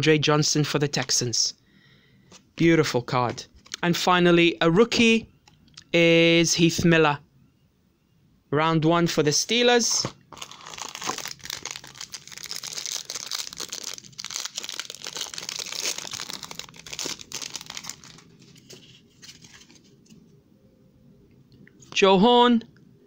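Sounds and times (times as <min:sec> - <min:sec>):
foil wrapper crinkling and tearing: 0:10.3 - 0:19.8.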